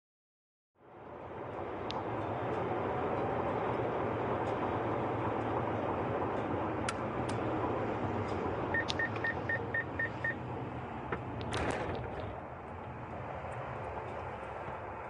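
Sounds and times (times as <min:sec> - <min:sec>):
car cabin road noise: 0:00.8 - 0:15.0
short high warning beeps: 0:08.8 - 0:10.4.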